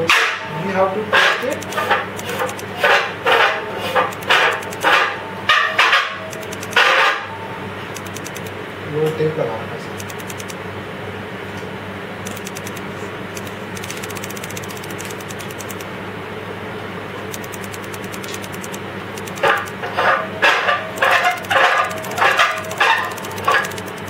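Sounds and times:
faint rapid ticking: 4.0 - 4.9, 6.3 - 6.8, 8.0 - 8.5, 10.0 - 10.6, 12.3 - 12.8, 13.4 - 15.9, 17.3 - 19.8, 21.0 - 24.0
loud irregular bursts: 6.4 - 6.8, 13.4 - 15.8, 17.3 - 19.8, 21.0 - 24.0.

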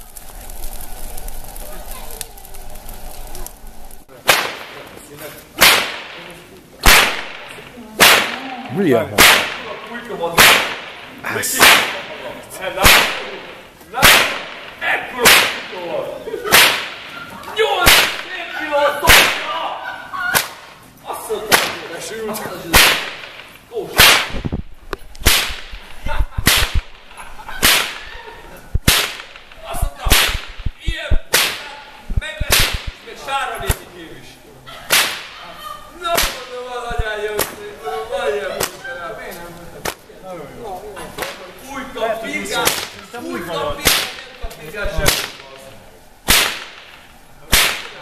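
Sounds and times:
whip cracking: 4.2 - 4.8, 5.6 - 9.7, 10.4 - 12.2, 12.8 - 13.4, 14.0 - 15.8, 16.5 - 17.2, 17.8 - 18.3, 19.1 - 19.5, 20.3 - 20.7, 21.5 - 21.9, 22.7 - 24.6, 25.2 - 28.2, 28.8 - 31.7, 32.4 - 33.0, 34.9 - 35.4, 36.1 - 36.5, 42.6 - 43.0, 43.8 - 45.6, 46.3 - 48.0.

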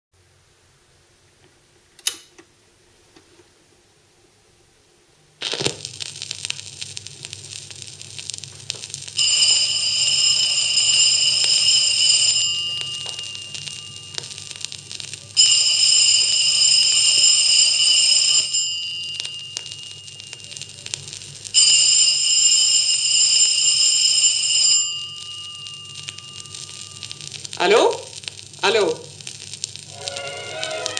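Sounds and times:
record surface hiss and hum: 0.2 - 30.9
old telephone bell ringing: 9.2 - 27.7.

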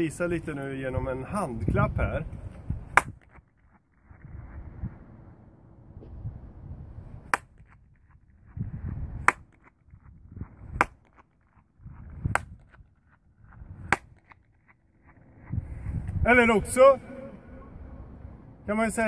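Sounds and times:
low rumble: 4.0 - 7.2, 17.0 - 18.7.

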